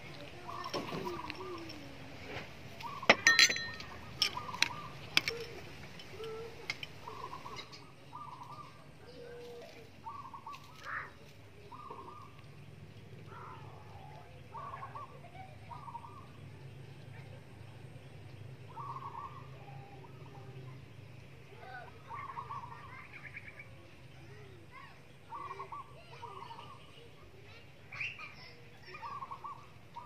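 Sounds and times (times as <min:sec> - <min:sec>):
birds calling: 0:00.0 - 0:30.0
metal spoon clinking bowl: 0:03.1 - 0:07.8.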